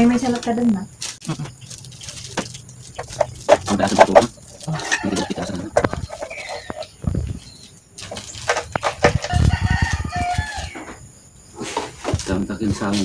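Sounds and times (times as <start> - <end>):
rooster crowing: 4.7 - 6.8, 8.8 - 11.1.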